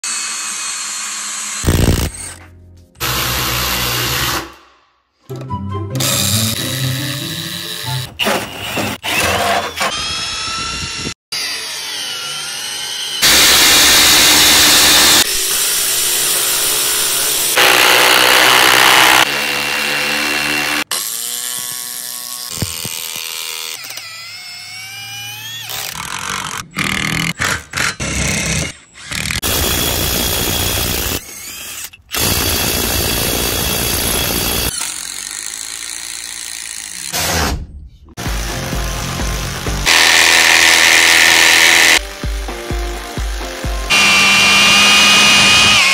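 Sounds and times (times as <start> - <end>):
drill cutting through wood: 0.0 - 2.4, 3.0 - 4.7, 6.0 - 37.6, 38.2 - 45.9.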